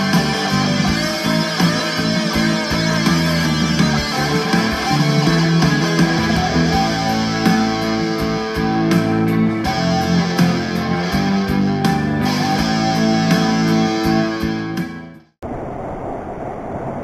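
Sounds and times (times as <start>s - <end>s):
electric guitar picked notes: 0.0s - 15.2s
steady rushing noise: 15.4s - 17.0s.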